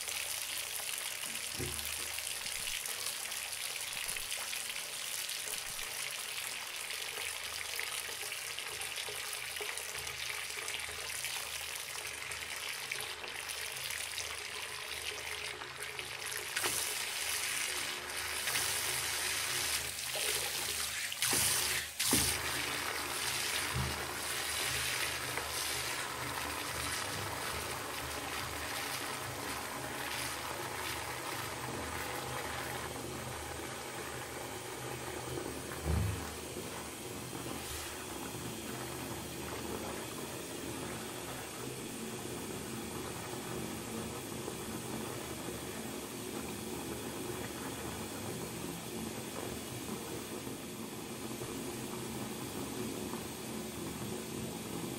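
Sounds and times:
water pouring into bathtub: 0.0s - 34.3s.

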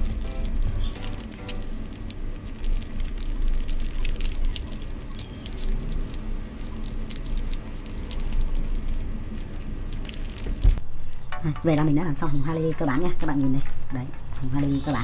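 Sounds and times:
paper rustling and crinkling: 0.0s - 10.9s
steady low hum: 0.0s - 15.0s.

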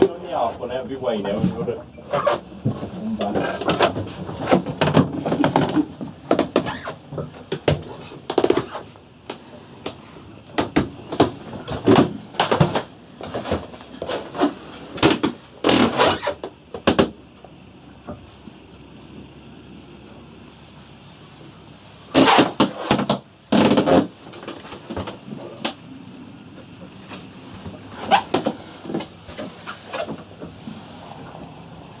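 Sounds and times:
knocks and bumps in wooden cabin: 2.2s - 17.2s.

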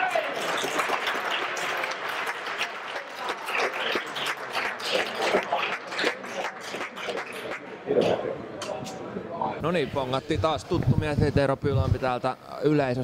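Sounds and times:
spectators clapping: 0.0s - 7.8s.

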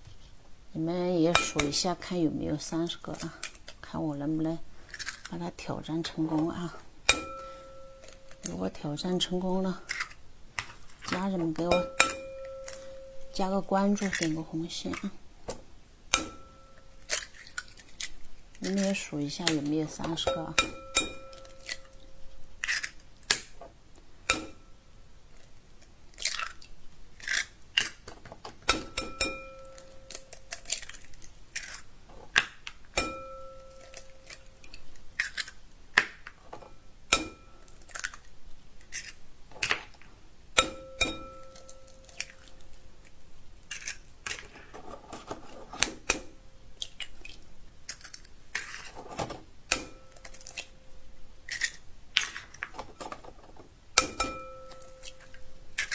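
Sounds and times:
eggshells crackling: 1.0s - 15.3s, 16.2s - 24.4s, 25.2s - 28.2s, 29.5s - 36.4s, 37.6s - 40.2s, 41.3s - 46.1s, 46.7s - 49.0s, 49.7s - 50.8s, 51.4s - 53.7s, 54.7s - 55.9s
glass bowl ringing: 7.1s - 8.5s, 11.7s - 13.6s, 16.1s - 17.0s, 20.2s - 22.2s, 28.9s - 30.3s, 33.0s - 34.2s, 36.7s - 37.6s, 40.6s - 42.1s, 54.0s - 55.6s.

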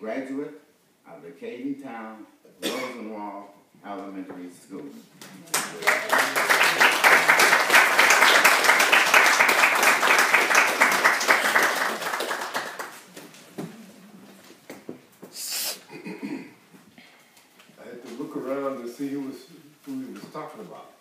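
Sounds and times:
audience applauding: 5.2s - 13.2s.

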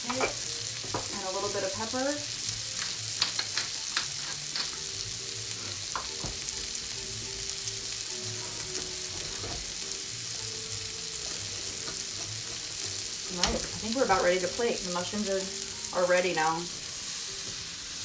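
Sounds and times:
mushrooms sizzling in a pan: 0.0s - 18.0s
utensils clicking and knocking: 2.8s - 4.8s.

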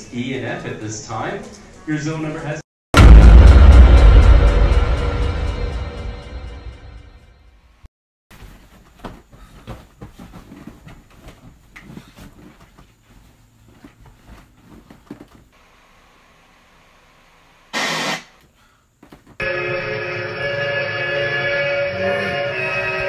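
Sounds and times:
bedclothes rustling: 8.3s - 15.6s
tv static hiss: 15.6s - 18.3s.

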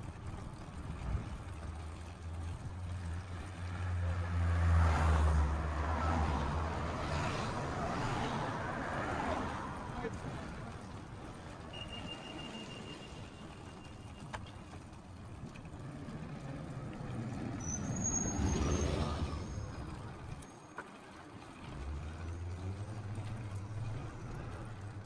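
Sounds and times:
low engine hum: 0.0s - 12.0s, 13.6s - 25.0s
vehicle passing close: 2.8s - 12.4s, 15.7s - 20.4s.

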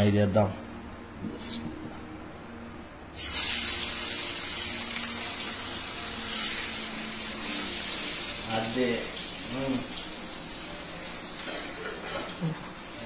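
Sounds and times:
fish sizzling in hot oil: 3.2s - 13.0s.

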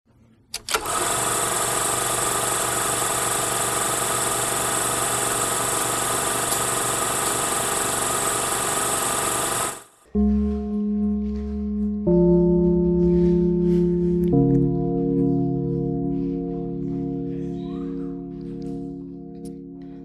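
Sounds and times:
film projector rattling: 0.6s - 10.0s
projector clicks: 5.4s - 8.6s.

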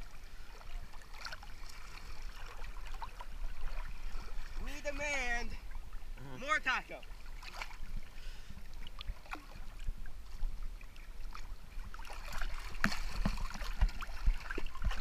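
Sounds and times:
lake water sloshing and splashing: 0.0s - 15.0s
small splashes and drips: 7.1s - 8.1s, 8.7s - 9.9s, 10.8s - 15.0s.

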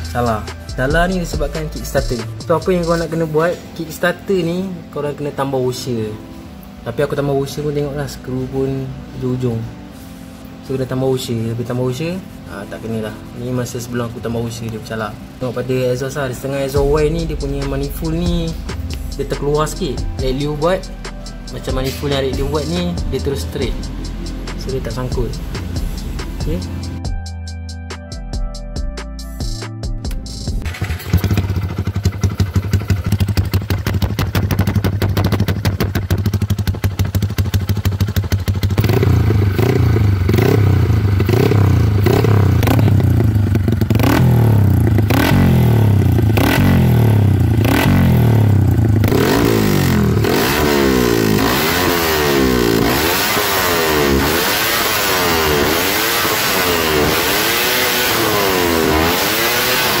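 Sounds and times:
motorcycle engine revving: 16.6s - 27.0s, 30.6s - 60.0s.

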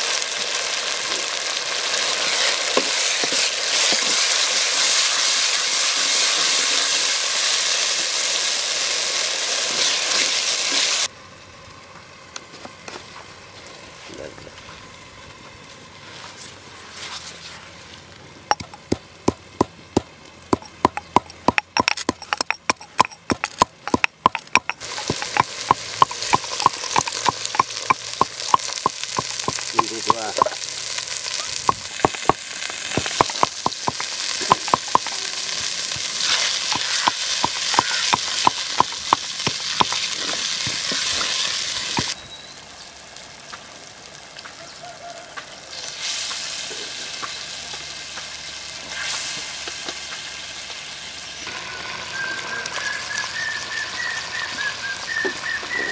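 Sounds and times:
hot oil sizzling: 0.0s - 12.4s, 18.4s - 55.9s
pestle pounding in a mortar: 18.5s - 30.6s, 31.6s - 35.2s, 36.6s - 41.3s.

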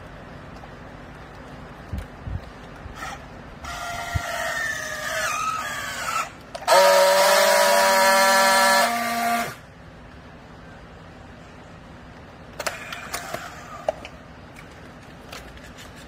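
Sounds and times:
strapping tool welding buzz: 6.7s - 9.6s.

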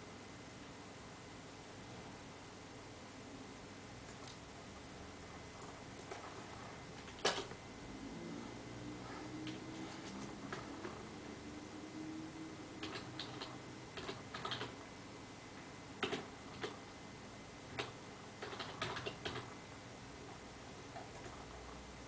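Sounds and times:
keyboard typing clicks: 6.0s - 7.6s, 9.5s - 11.0s, 12.8s - 14.8s, 16.0s - 16.8s, 17.7s - 19.6s, 20.9s - 21.6s.

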